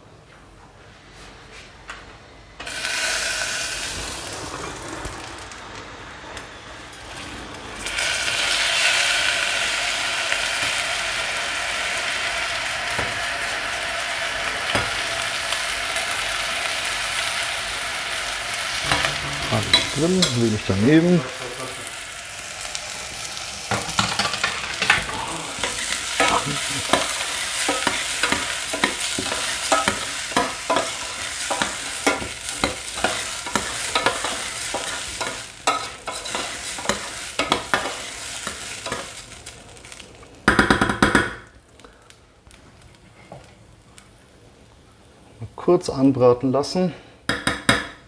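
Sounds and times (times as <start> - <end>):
rice sizzling in butter: 2.6 - 5.6, 6.8 - 40.5.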